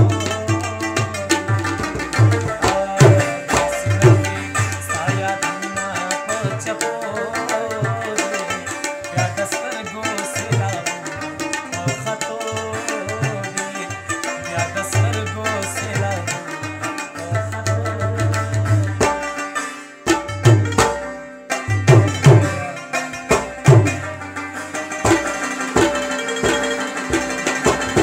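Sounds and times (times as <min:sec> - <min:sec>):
tabla bass drum strokes: 0:00.0 - 0:05.3, 0:20.0 - 0:28.0
tabla treble drum strokes: 0:00.0 - 0:28.0.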